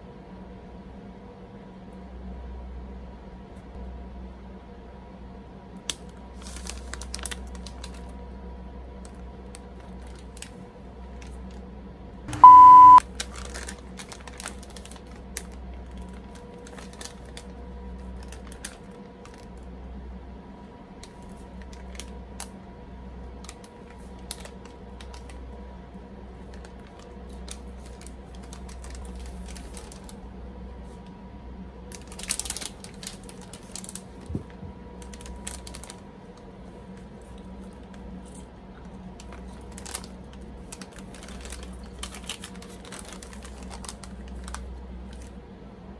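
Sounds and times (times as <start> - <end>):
faint steady hum: 0.0 - 45.9
crisp snack sheet crackling: 5.8 - 8.2, 9.0 - 11.6, 13.0 - 19.6, 23.4 - 25.4, 26.4 - 30.3, 31.9 - 45.4
crinkling: 5.9 - 8.2, 9.0 - 11.6, 13.1 - 19.6, 23.4 - 25.4, 26.4 - 30.2, 31.9 - 45.4
loud beep: 12.3 - 13.0.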